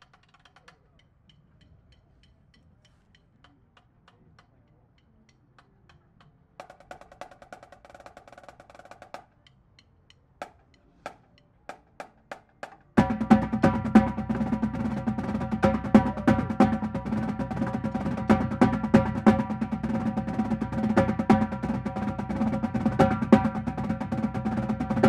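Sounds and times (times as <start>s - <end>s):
snare drum ticks: 5.6s - 25.0s
accented drum strokes: 10.4s - 25.0s
soft drum roll: 10.4s - 25.0s
full drumline playing loudly: 13.0s - 25.0s.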